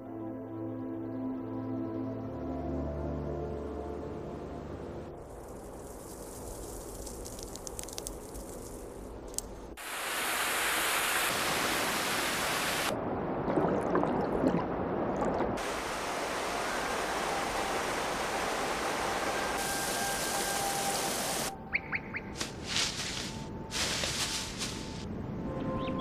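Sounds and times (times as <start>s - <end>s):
water dripping from ice: 5.3s - 9.4s
water cascading down rock: 9.8s - 12.9s, 15.6s - 21.5s.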